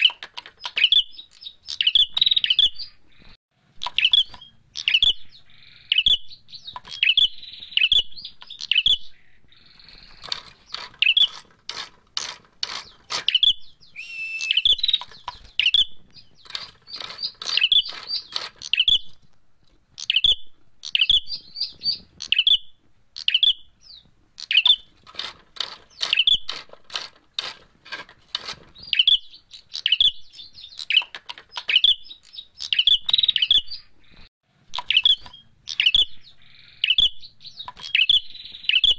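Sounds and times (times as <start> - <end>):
bird sharp chips: 0.0 - 19.3, 20.0 - 38.9
bird dry rattling trills: 9.6 - 19.2, 24.4 - 33.8.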